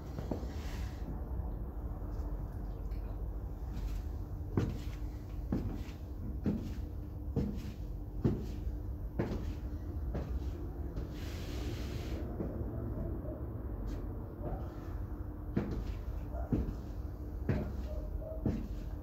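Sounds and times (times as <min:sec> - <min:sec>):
high heels clicking on tiled floor: 0:03.7 - 0:11.1, 0:13.8 - 0:19.0.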